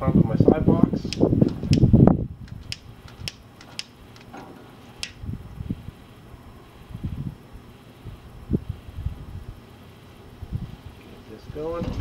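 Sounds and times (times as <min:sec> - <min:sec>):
lighter igniter clicking: 0:01.1 - 0:04.3, 0:05.0 - 0:05.2.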